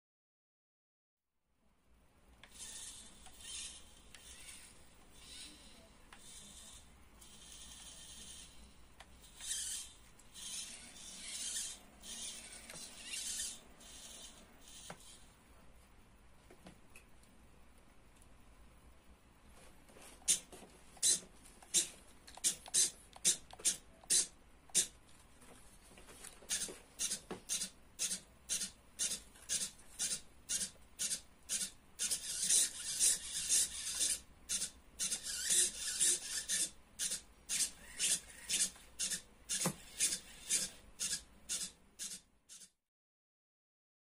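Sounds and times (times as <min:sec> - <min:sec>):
servo motors whirring: 0:02.5 - 0:15.2, 0:26.5 - 0:42.7.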